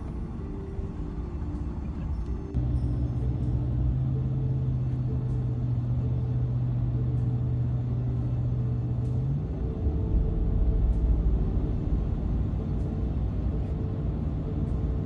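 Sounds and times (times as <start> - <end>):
engine and road drone: 0.0 - 15.0.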